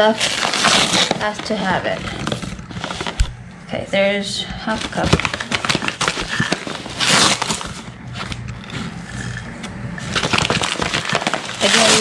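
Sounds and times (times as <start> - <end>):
paper bag crinkling: 0.0 - 3.4, 4.7 - 9.0, 10.0 - 12.0
measuring cup scraping: 8.5 - 10.1.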